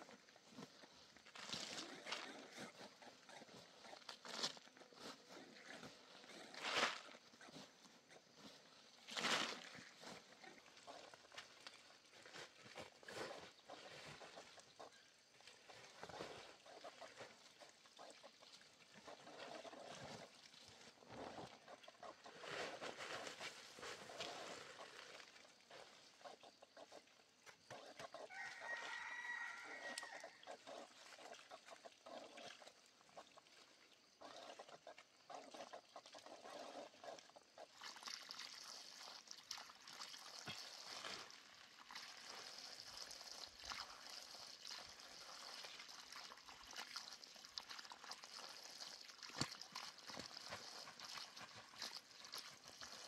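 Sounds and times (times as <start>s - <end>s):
rooster crowing: 28.3s - 30.4s
scraping and tapping soil: 48.8s - 53.0s.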